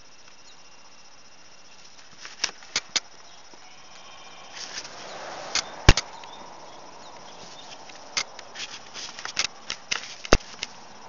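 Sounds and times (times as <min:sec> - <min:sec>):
loud thumps: 0:05.5 - 0:06.1
sharp clicks and knocks: 0:05.5 - 0:06.4, 0:07.2 - 0:10.8.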